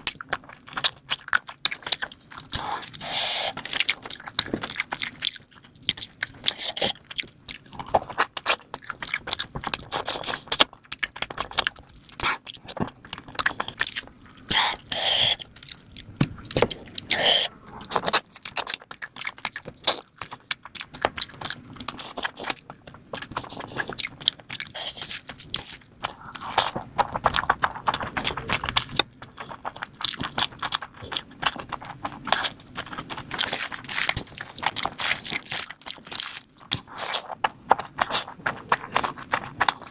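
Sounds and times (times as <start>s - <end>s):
person chewing: 0.0s - 39.9s.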